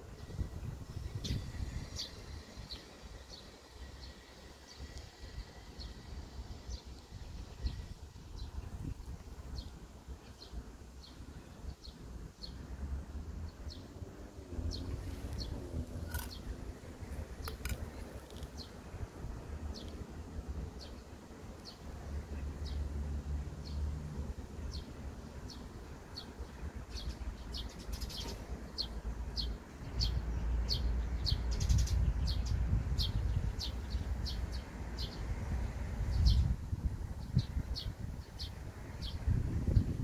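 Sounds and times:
bird chirping: 25.5s - 35.2s.

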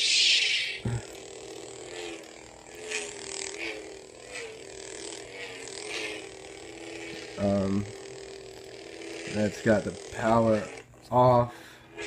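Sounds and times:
lightsaber swing sounds: 0.0s - 7.9s
lightsaber humming: 0.0s - 12.0s.

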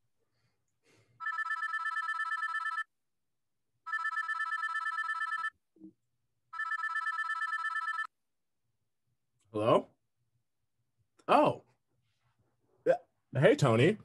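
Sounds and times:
phone ringing electronic trill: 1.2s - 2.9s, 3.9s - 5.6s, 6.6s - 8.1s.

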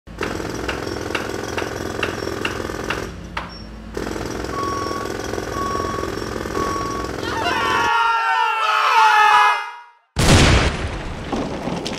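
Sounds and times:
jackhammer hammering: 0.1s - 7.8s
short beep: 4.5s - 7.2s.

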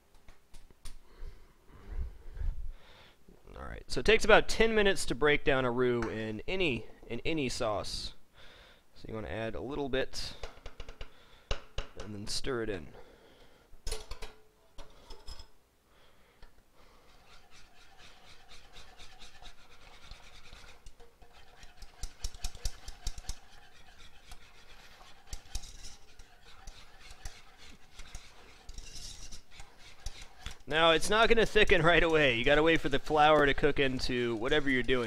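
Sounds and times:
whisk scraping a saucepan: 16.8s - 35.0s.

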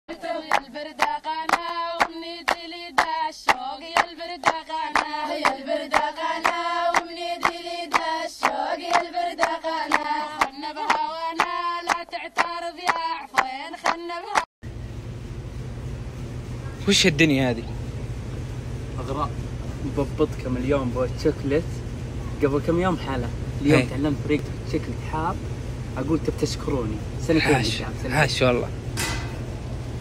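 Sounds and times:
steady hand claps: 0.4s - 14.5s.

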